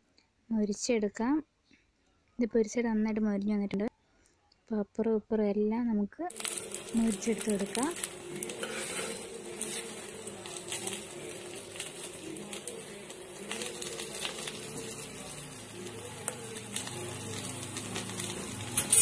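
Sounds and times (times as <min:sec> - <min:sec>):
fish sizzling in oil: 0:06.3 - 0:19.0.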